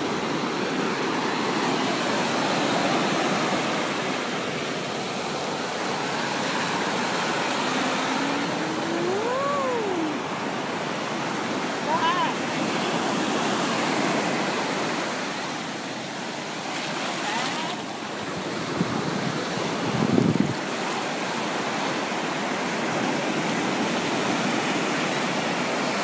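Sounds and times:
waves washing up a beach: 0.0s - 26.0s
wind rumble on microphone: 18.3s - 20.7s.

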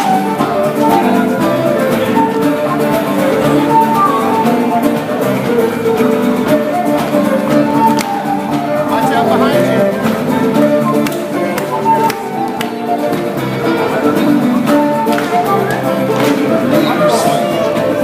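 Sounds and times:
guitar: 0.0s - 18.0s.

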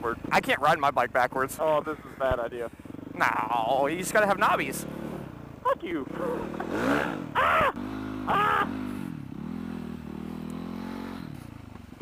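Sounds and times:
dirt bike engine running: 0.0s - 12.0s
loud shouts: 7.3s - 8.8s.

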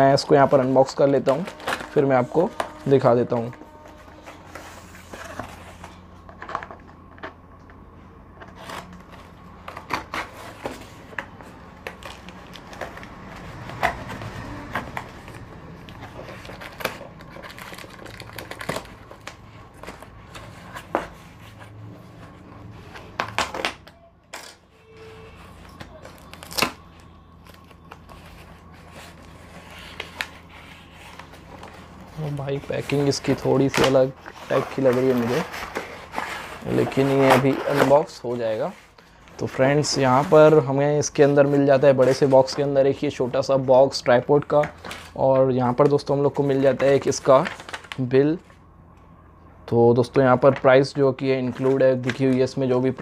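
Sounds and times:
paper crinkling and tearing: 0.2s - 6.7s, 8.5s - 21.9s, 22.8s - 40.6s, 46.6s - 48.1s.

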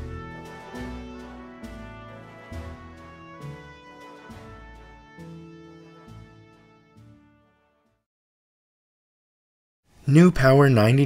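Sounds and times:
background music with chords: 0.0s - 7.8s.

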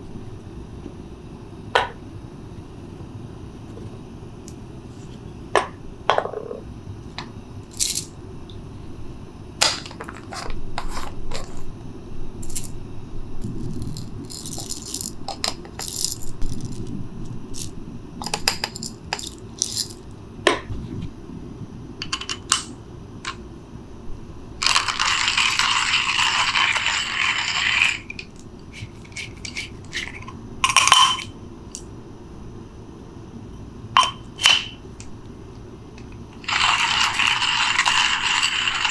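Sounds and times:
coffee beans pouring rattle: 7.7s - 8.1s, 12.4s - 12.8s, 13.4s - 20.0s, 24.6s - 31.2s, 36.4s - 38.9s.

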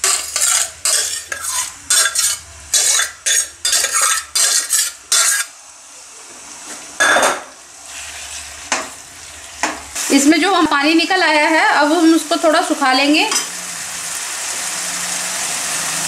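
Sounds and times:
spoon stirring and scraping a pan: 0.0s - 5.5s
light sizzle: 0.0s - 16.0s.

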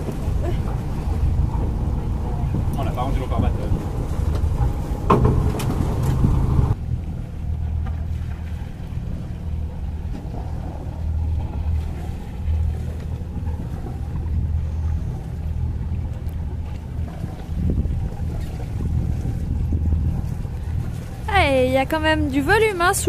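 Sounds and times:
wind noise on microphone: 0.0s - 7.6s, 12.7s - 22.3s
boat engine droning: 0.0s - 23.0s.

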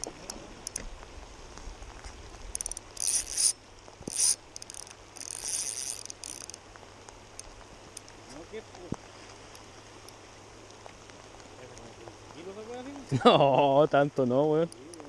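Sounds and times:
fishing reel drag buzzing: 2.5s - 6.6s.

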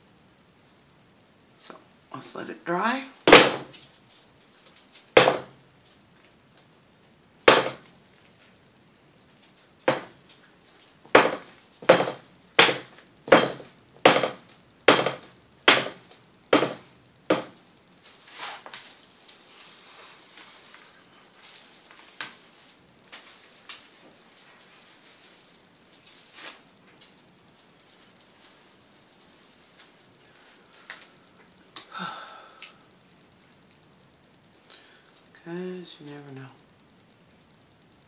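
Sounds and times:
sharp knocks: 3.3s - 3.8s, 5.2s - 5.6s, 7.5s - 7.8s, 9.9s - 10.2s, 11.1s - 17.6s
faint rustle: 17.6s - 31.8s.

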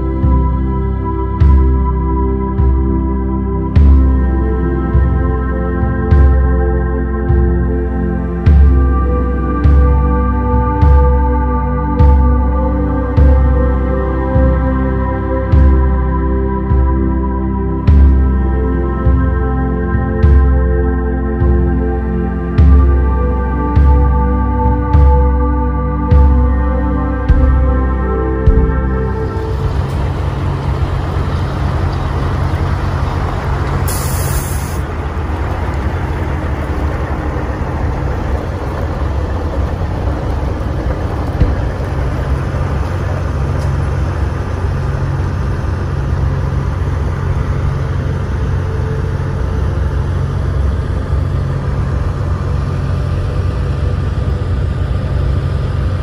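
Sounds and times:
diesel truck engine running: 0.0s - 56.0s
air hiss: 33.9s - 34.9s.

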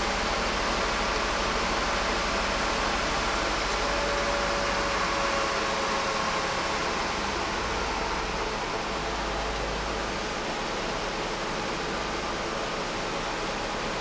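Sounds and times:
faint engine whine: 0.0s - 14.0s.

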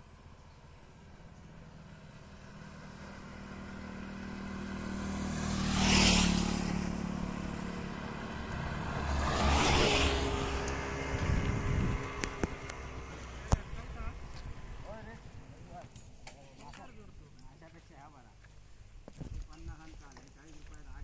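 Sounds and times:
auto-rickshaw engine passing: 0.0s - 15.8s
motorcycle passing: 0.0s - 18.0s.

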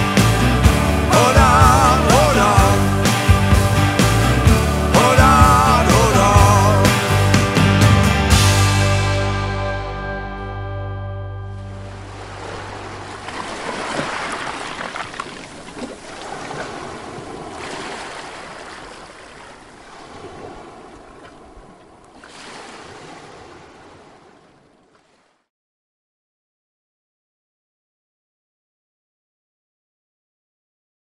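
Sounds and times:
sea waves washing onto pebbles: 12.0s - 25.2s.

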